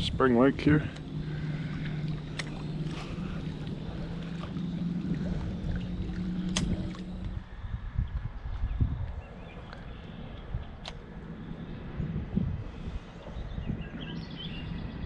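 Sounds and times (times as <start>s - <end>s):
low engine hum: 0.0s - 15.0s
light clicks: 2.0s - 3.0s, 9.0s - 11.0s.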